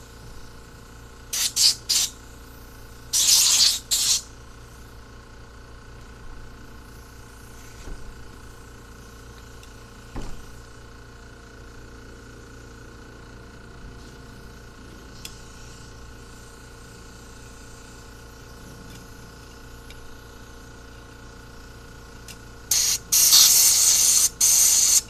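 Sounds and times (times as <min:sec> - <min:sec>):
hissing spray blasts: 0:01.3 - 0:02.2, 0:03.1 - 0:04.3, 0:22.7 - 0:25.0
knock on wooden bench: 0:10.1 - 0:10.4.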